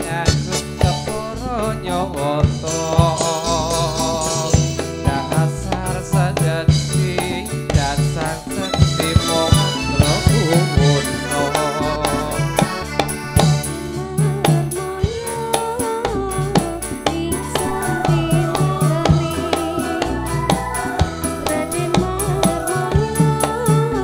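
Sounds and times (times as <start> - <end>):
drums beating steadily: 0.0 - 24.0
wavering melody: 8.6 - 14.7, 17.1 - 23.8.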